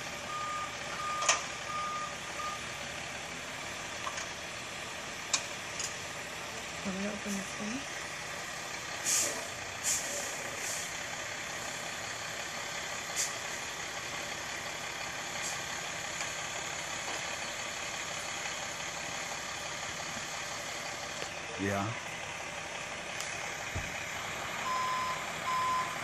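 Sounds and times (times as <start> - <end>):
trucks idling: 0.0 - 26.0
short high hisses: 9.0 - 10.9.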